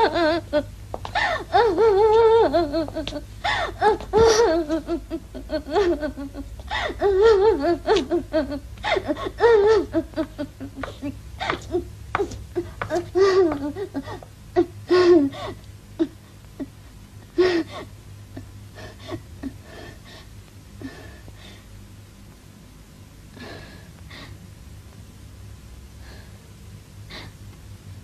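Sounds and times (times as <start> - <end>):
woman sobbing: 0.0 - 11.9, 12.6 - 20.2.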